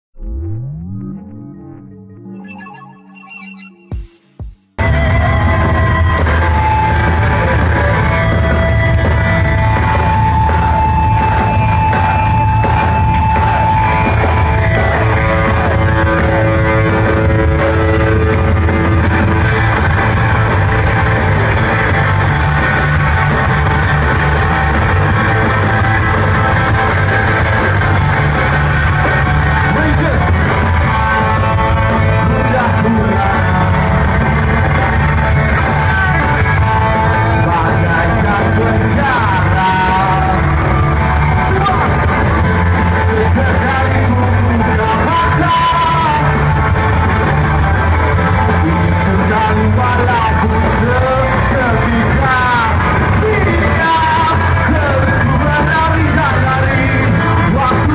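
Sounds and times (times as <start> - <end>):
sustained electric guitar notes: 0.2 - 3.0, 4.8 - 57.9
live rock band playing: 3.9 - 57.9.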